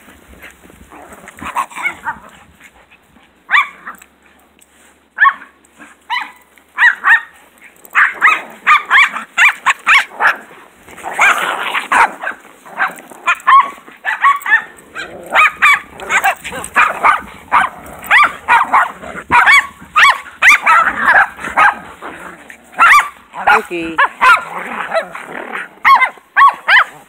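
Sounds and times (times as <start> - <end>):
small dogs barking and yipping: 1.0 - 27.0.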